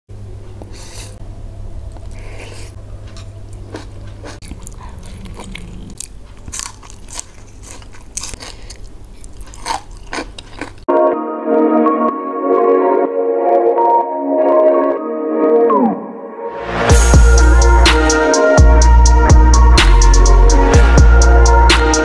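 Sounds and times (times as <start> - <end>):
crunching and chewing: 1.9 - 10.9.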